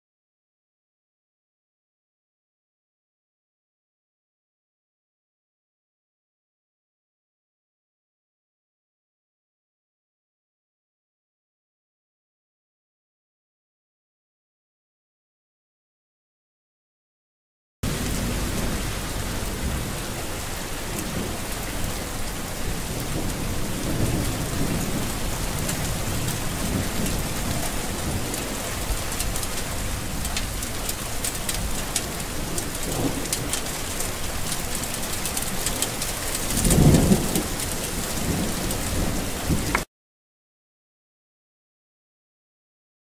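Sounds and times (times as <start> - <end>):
thunder rumbling: 17.8 - 39.8
heavy rain: 17.8 - 39.9.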